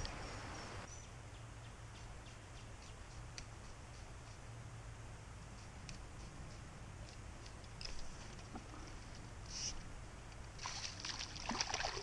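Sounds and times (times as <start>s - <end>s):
steady low murmur: 0.0s - 10.6s
isolated ticks: 1.9s - 4.8s, 5.4s - 10.5s
fish splashing and thrashing: 10.6s - 12.0s.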